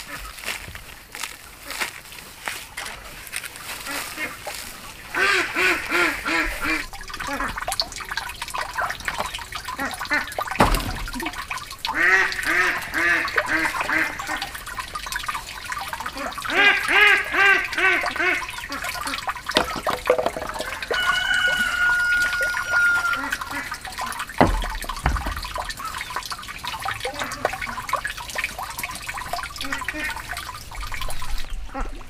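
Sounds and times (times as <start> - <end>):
ducks quacking: 2.8 - 7.6, 16.0 - 26.1
dull thump: 10.6 - 11.4, 19.6 - 20.9, 24.4 - 25.7.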